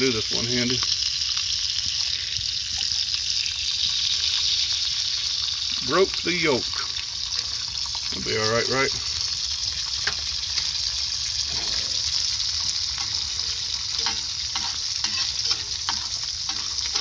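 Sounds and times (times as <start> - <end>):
egg sizzling in butter: 0.0 - 17.0
metal spatula scraping pan: 11.4 - 12.3, 13.0 - 17.0.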